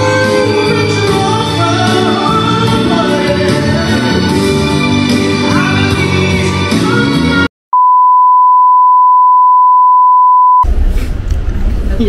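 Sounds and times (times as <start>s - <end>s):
single-pitch test-tone beep: 7.7s - 10.6s.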